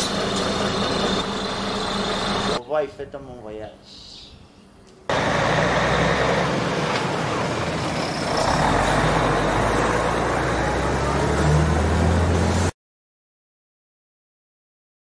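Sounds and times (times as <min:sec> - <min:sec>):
truck diesel engines running: 0:00.0 - 0:02.6, 0:05.1 - 0:12.7
road noise: 0:00.0 - 0:02.7, 0:04.8 - 0:12.8.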